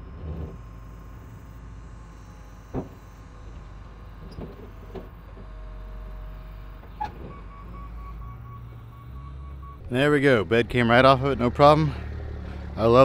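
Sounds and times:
loader engine running: 0.0s - 13.0s
metal clunks: 2.6s - 5.8s, 6.8s - 7.8s.

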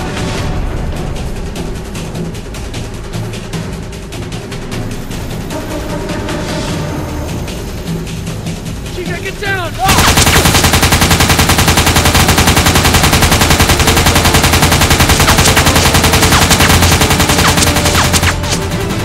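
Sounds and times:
machine-gun fire: 9.8s - 18.7s.

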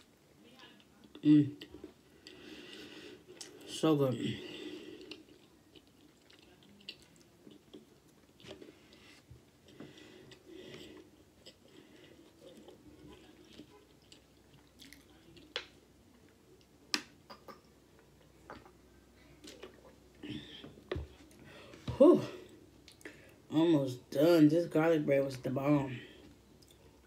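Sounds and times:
chewing and mouth sounds: 4.8s - 18.8s, 26.6s - 27.0s.

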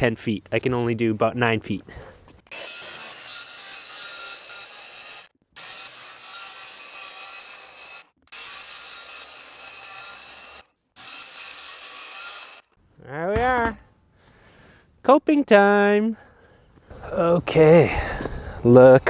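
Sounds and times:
circular saw cutting plywood: 2.5s - 12.8s.

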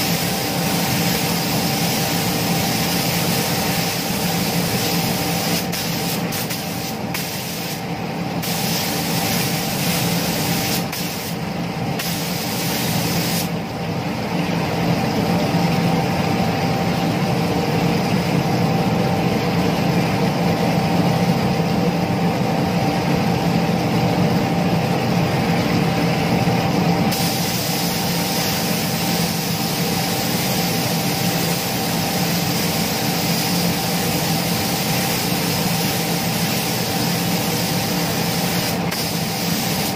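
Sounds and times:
paint spray gun hissing: 0.0s - 11.4s, 12.0s - 13.5s, 27.1s - 39.9s
constant machine hum: 0.0s - 39.9s.

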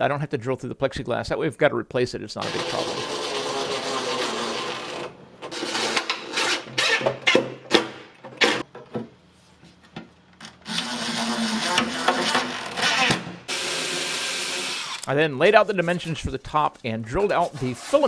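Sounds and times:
cordless drill driving screws: 2.4s - 7.4s, 10.6s - 15.1s.

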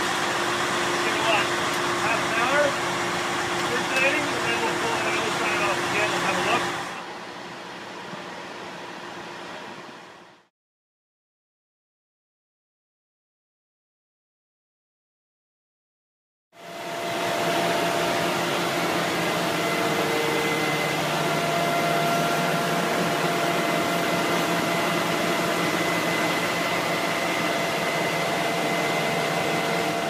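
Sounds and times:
pump unit mechanical whir: 0.0s - 10.5s, 16.6s - 30.0s.

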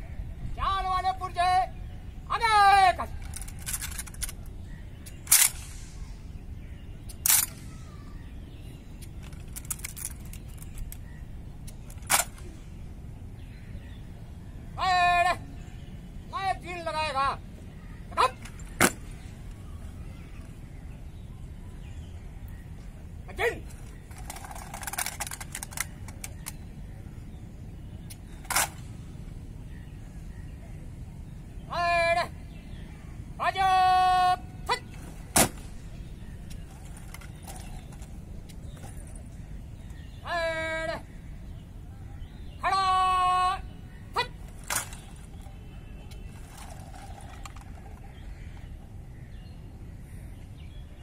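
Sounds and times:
hands clicking and slapping rifles: 23.8s - 26.6s.

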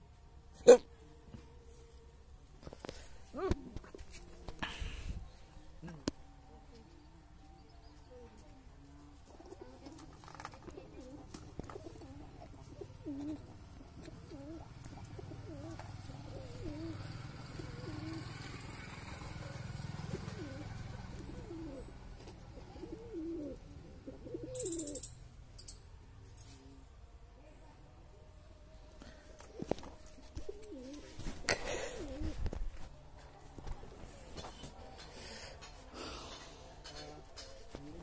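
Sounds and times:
pigeons cooing: 5.7s - 25.1s, 29.1s - 32.8s.

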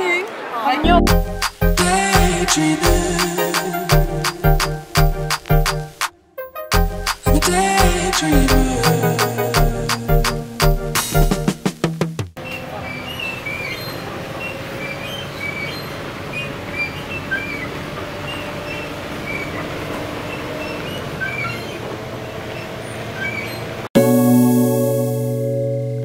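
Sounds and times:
bus engine and road noise: 12.4s - 23.9s.

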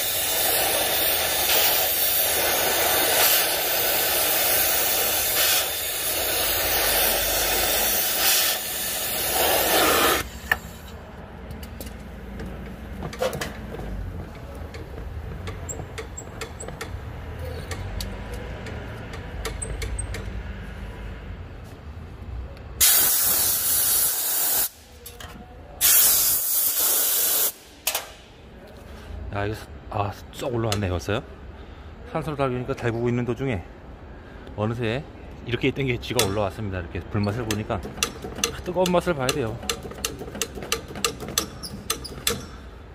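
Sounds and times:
torch flame hissing: 0.0s - 10.5s, 22.8s - 24.8s.

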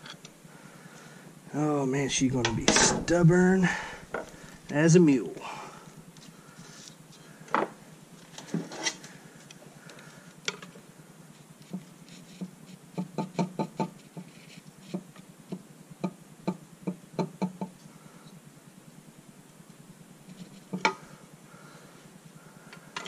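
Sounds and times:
tools tapping and knocking metal: 2.4s - 3.1s, 20.7s - 21.0s.

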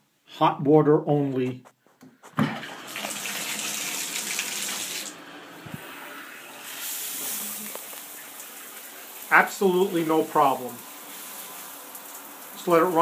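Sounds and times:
shower spray hissing: 2.8s - 13.0s.

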